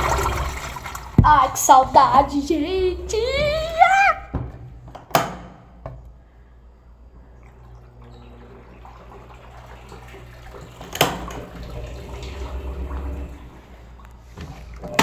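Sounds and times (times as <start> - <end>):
low steady hum: 0.0 - 15.0
water running and dripping: 7.2 - 15.0.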